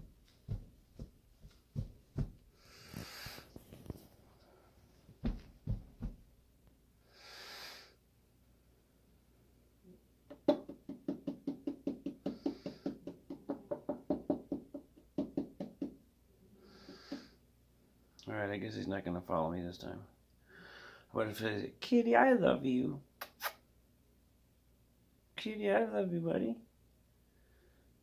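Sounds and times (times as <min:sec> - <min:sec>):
dull thumps: 0:00.0 - 0:02.6, 0:05.2 - 0:06.4.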